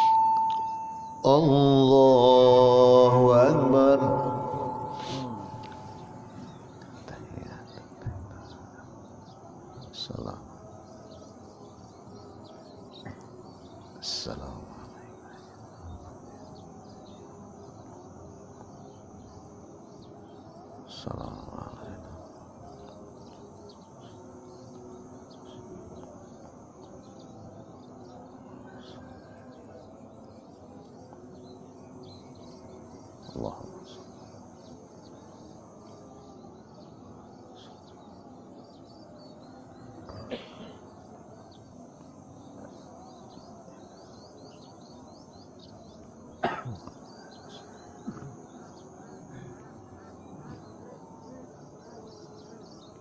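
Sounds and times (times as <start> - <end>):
faint insect hum: 0.0 - 53.0
low background noise: 0.0 - 53.0
small birds chirping: 0.0 - 53.0.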